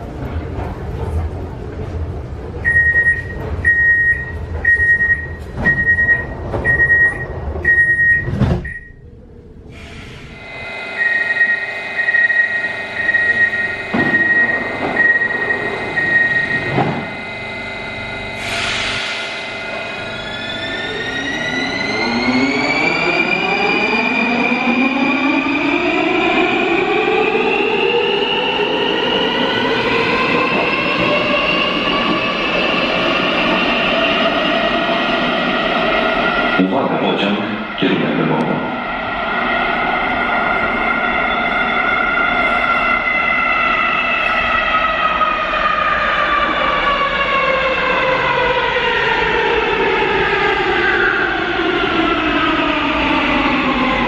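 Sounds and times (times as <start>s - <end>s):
door-closing warning beeps: 2.6s - 9.0s, 10.3s - 19.0s
train doors hissing shut: 9.7s - 10.4s, 18.4s - 19.6s.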